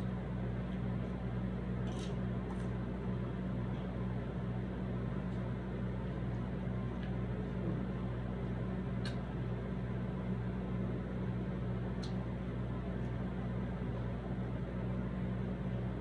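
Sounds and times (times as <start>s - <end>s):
low mechanical hum with hiss: 0.0s - 16.0s.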